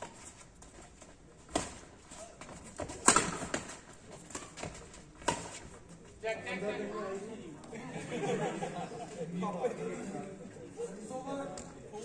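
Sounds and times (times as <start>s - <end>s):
rackets hitting shuttlecock: 1.5s - 5.7s.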